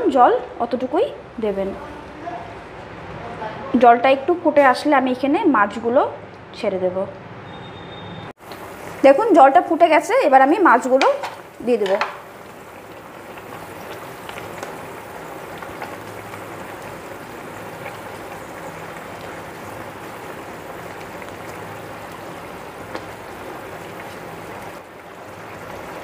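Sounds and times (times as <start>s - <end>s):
gravy bubbling in pan: 8.4s - 26.0s.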